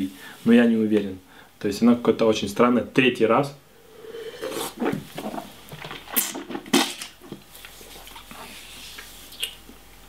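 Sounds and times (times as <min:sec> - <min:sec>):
mouth slurping wine: 0:03.9 - 0:05.5.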